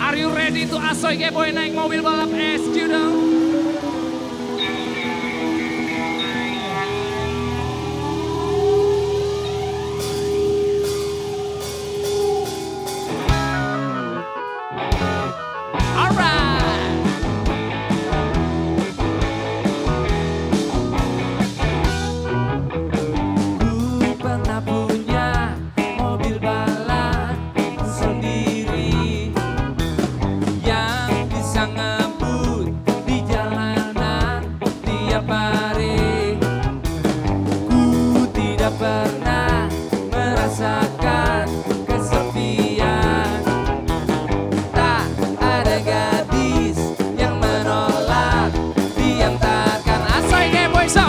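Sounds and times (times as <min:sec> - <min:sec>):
rock band playing: 0:00.0 - 0:51.0
drums striking regular beat: 0:15.8 - 0:22.2, 0:23.0 - 0:51.0.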